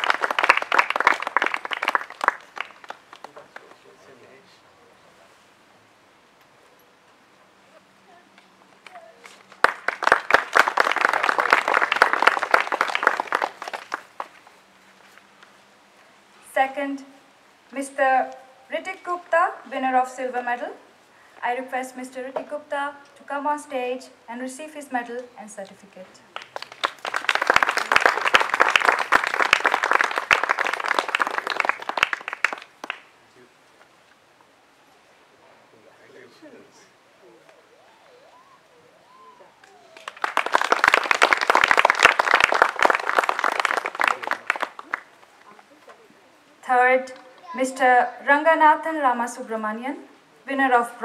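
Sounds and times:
audience applauding: 0.0 - 4.0, 8.8 - 14.6, 26.4 - 33.1, 37.8 - 45.6
people clapping: 0.0 - 4.1, 8.8 - 14.6, 26.3 - 33.1, 39.3 - 45.7, 47.0 - 47.6.

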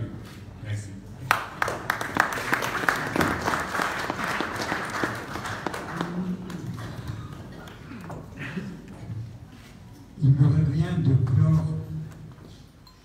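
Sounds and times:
audience applauding: 1.3 - 8.1.

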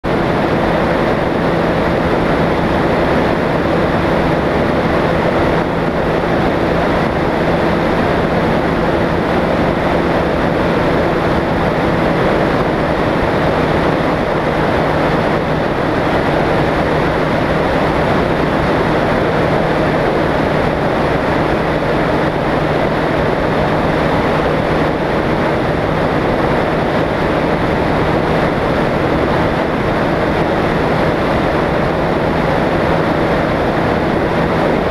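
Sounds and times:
aircraft engine droning: 0.0 - 34.9.

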